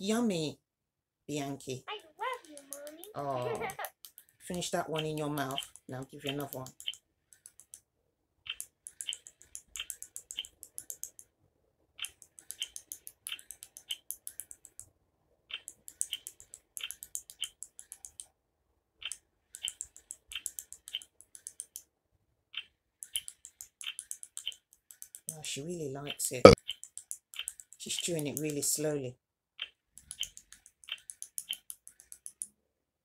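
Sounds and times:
doll electronic chewing clicks: 2.2s - 3.2s, 4.9s - 7.8s, 8.5s - 11.2s, 12.0s - 14.9s, 15.5s - 18.3s, 19.0s - 21.8s, 22.6s - 25.3s, 26.4s - 27.8s, 29.6s - 32.5s.

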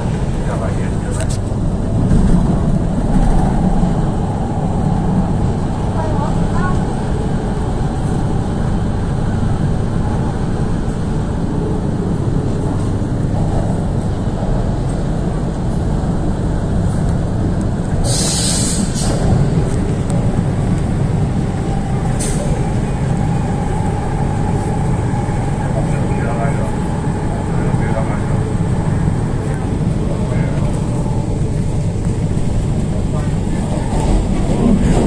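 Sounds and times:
train wheels rumbling on rails: 0.0s - 35.0s
loud hiss: 18.0s - 19.0s.

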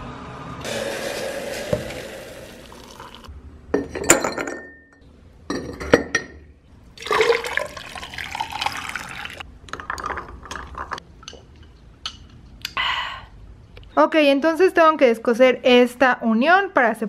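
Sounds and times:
tea pouring over ice: 1.0s - 3.3s, 7.0s - 9.4s.

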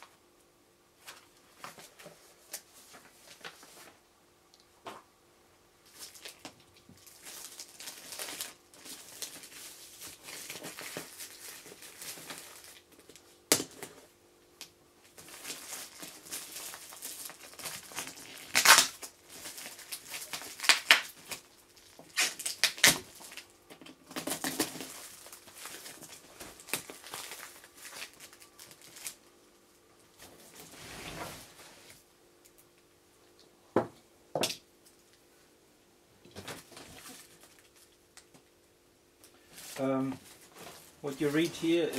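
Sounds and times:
plastic film rustling and crinkling: 1.0s - 4.0s, 5.8s - 14.1s, 15.0s - 29.3s, 36.4s - 38.4s, 39.2s - 41.9s.

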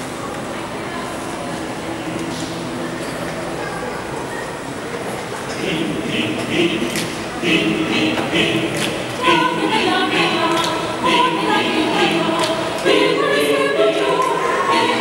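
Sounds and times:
mixed choir singing a cappella: 5.4s - 15.0s.

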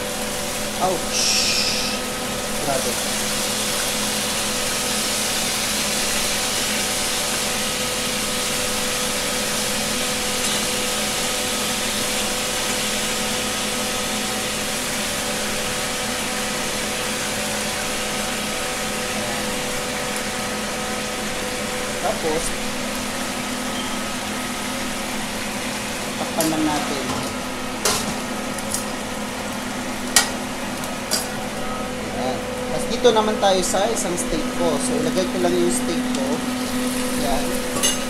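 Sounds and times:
machine hum: 0.0s - 38.0s
meat sizzling in a frying pan: 0.0s - 38.0s.

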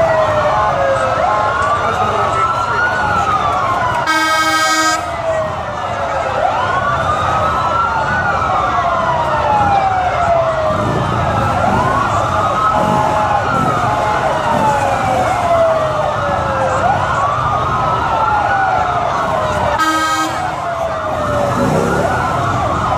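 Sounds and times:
police sirens wailing: 0.0s - 22.9s
horn blast: 4.0s - 5.1s, 19.8s - 20.6s.

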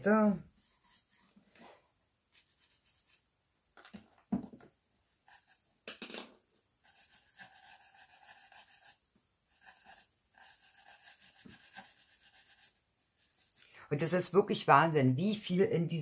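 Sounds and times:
paintbrush scrubbing on card: 0.5s - 1.4s, 2.3s - 3.3s, 5.1s - 5.6s, 6.8s - 13.6s.

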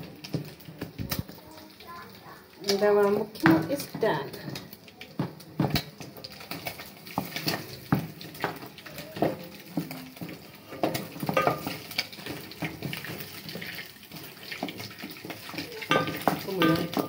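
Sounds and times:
wooden stick stirring thick food: 2.6s - 17.0s
stick knocking against metal pot: 9.2s - 13.2s, 14.6s - 17.0s.

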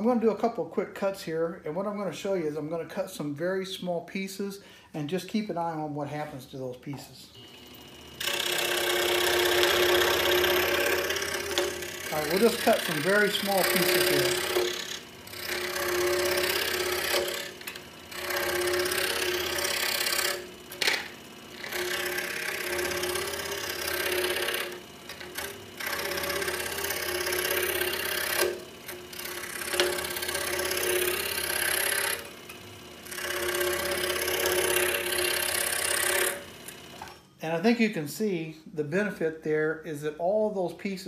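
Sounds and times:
scroll saw cutting wood: 7.0s - 37.2s.

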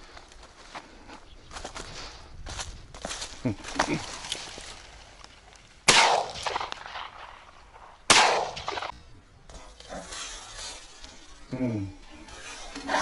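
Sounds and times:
shotgun shots: 5.9s - 9.0s.

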